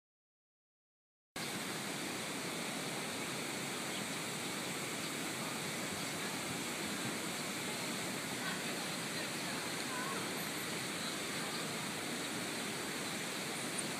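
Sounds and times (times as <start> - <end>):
stream water flowing: 1.4 - 13.9.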